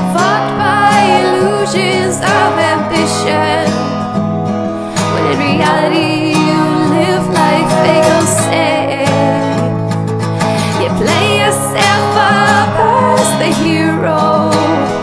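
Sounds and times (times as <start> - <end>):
person singing with vibrato: 0.0 - 4.1, 4.8 - 15.0
strummed acoustic guitar: 0.0 - 15.0.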